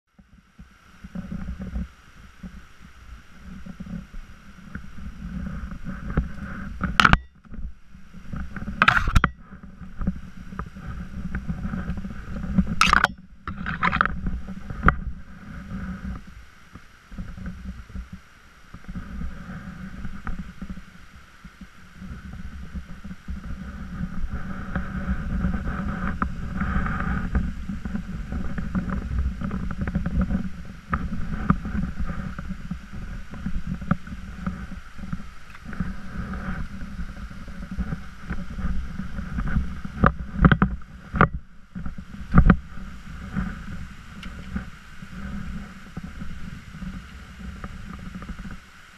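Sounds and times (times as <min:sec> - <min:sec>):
wind buffeting microphone: 0:00.3 - 0:48.9
stream trickling over rocks: 0:00.6 - 0:25.3.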